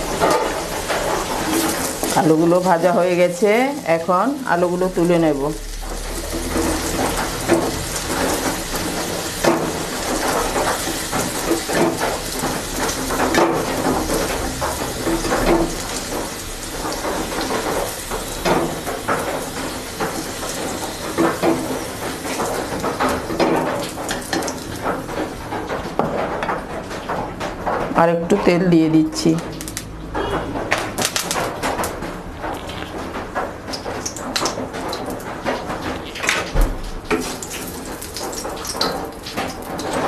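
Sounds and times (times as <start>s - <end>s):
wooden spatula scraping a pan: 0.0s - 3.0s
hot oil sizzling in a pan: 0.0s - 26.1s, 33.7s - 40.0s.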